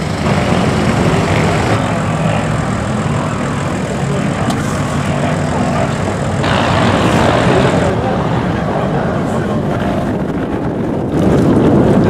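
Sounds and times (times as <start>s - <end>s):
off-road vehicle engines running: 0.0s - 12.0s.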